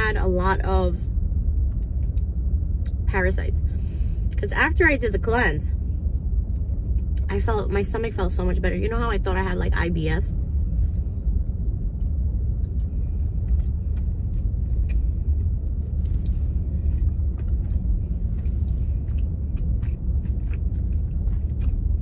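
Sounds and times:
low rumble in car cabin: 0.0s - 22.0s
chewing crispy food: 12.0s - 22.0s.

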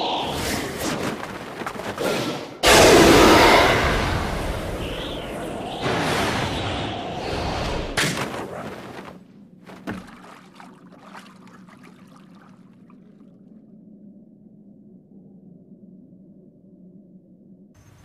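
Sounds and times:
low hum: 9.2s - 18.0s
water drips and splashes: 9.7s - 13.6s.

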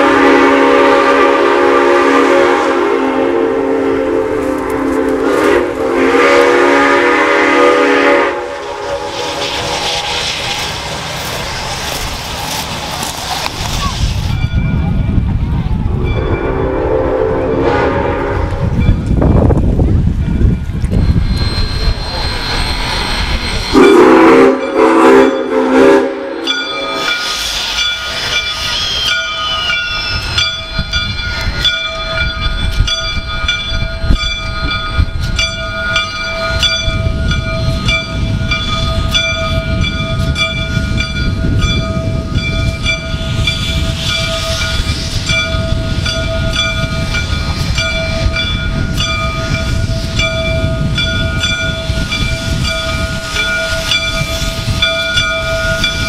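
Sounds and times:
steam locomotive whistle: 0.0s - 10.7s, 16.0s - 18.9s, 20.9s - 32.5s, 35.8s - 56.0s
rumble and hiss of moving train: 0.0s - 56.0s
locomotive bell ringing: 14.3s - 56.0s.

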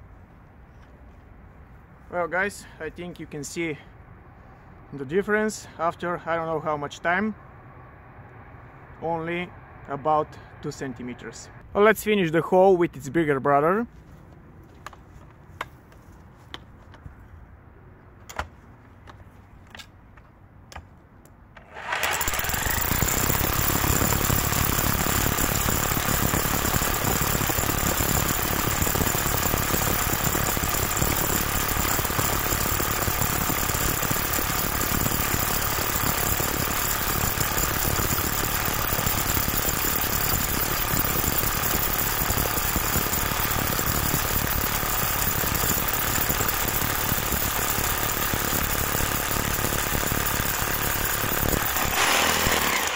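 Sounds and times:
hammer drill drilling into stone: 21.7s - 52.9s.

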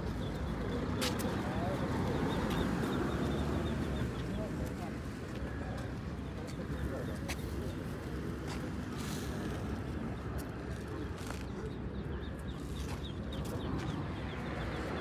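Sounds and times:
faint voices: 0.0s - 15.0s
market background noise: 0.0s - 15.0s.

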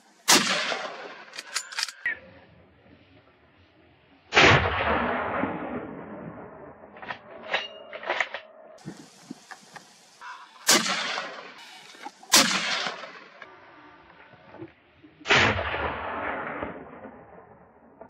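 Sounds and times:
gunshots echoing: 0.2s - 2.1s, 10.4s - 13.5s, 15.3s - 17.6s.

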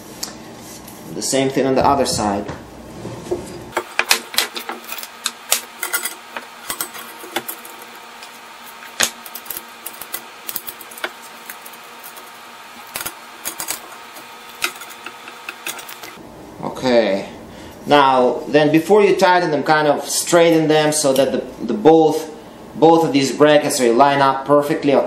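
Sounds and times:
metal fence parts clinking: 5.8s - 7.8s.

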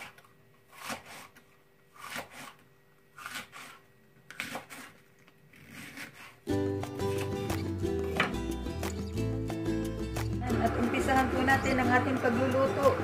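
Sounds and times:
knife slicing through cabbage: 0.0s - 7.7s.

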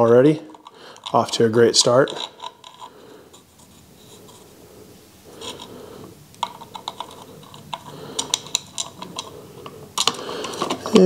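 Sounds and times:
small metal parts clicking: 6.4s - 9.4s.

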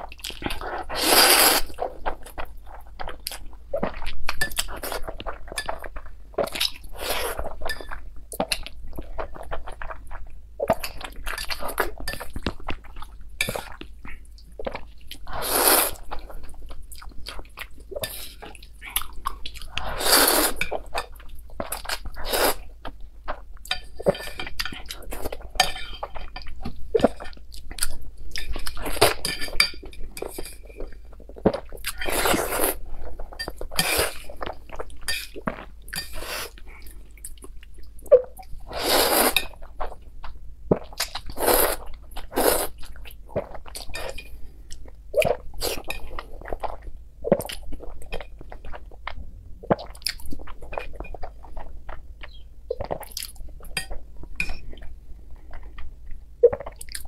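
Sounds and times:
noodle slurping: 0.7s - 1.8s, 19.8s - 20.6s.

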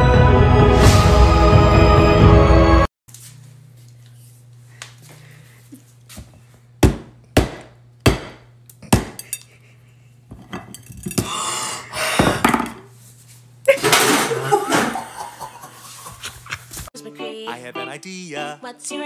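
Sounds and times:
steady low hum: 3.1s - 16.9s.

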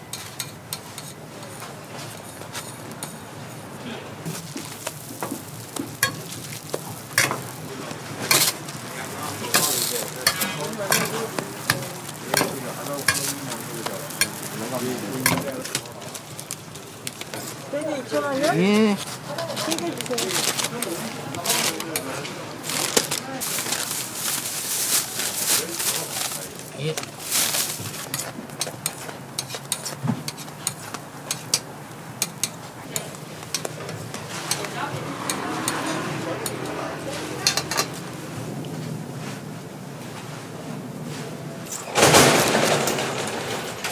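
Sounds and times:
pancakes sizzling: 0.0s - 38.1s
metal turner scraping on griddle: 0.1s - 1.3s, 4.2s - 22.4s, 27.6s - 38.1s.

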